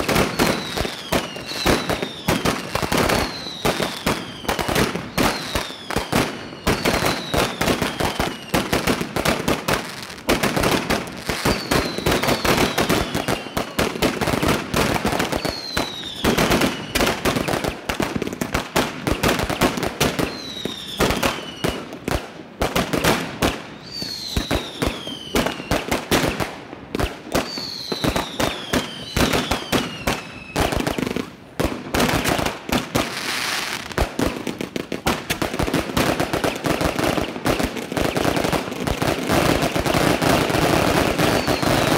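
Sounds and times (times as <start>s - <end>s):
firecracker bangs crackling: 0.0s - 41.9s
falling whistle: 23.8s - 25.7s, 27.5s - 30.6s.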